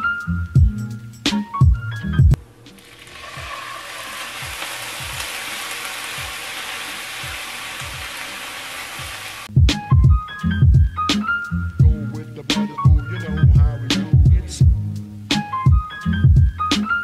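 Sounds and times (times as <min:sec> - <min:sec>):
onions sizzling in a frying pan: 0:02.8 - 0:09.5.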